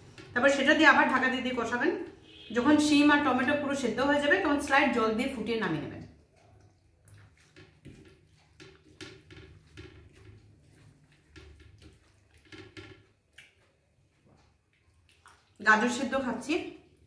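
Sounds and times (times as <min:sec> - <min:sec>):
wet chewing clicks: 0:06.0 - 0:15.7
fingers mixing food on a plate: 0:06.2 - 0:15.6.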